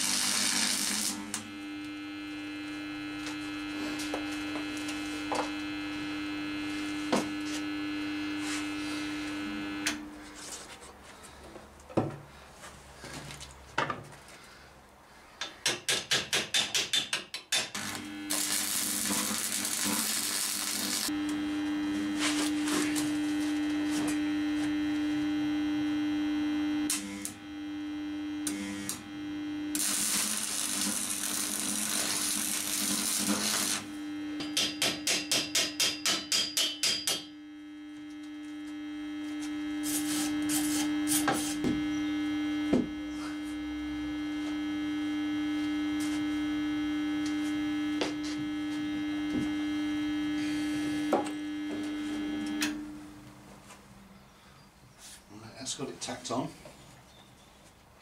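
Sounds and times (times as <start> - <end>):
welding arc crackling: 0.0 - 10.3, 17.6 - 53.3
electric welder humming: 0.0 - 10.5, 17.6 - 53.5.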